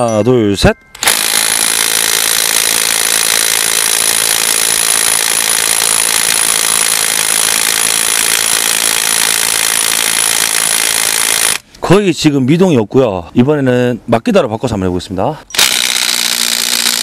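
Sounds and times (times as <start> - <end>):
impact wrench hammering: 15.6 - 17.0.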